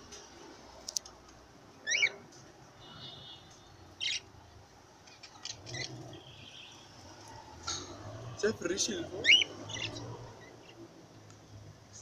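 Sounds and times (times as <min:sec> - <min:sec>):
cockatiels chirping: 0:01.8 - 0:02.2, 0:04.0 - 0:04.2, 0:09.2 - 0:10.8.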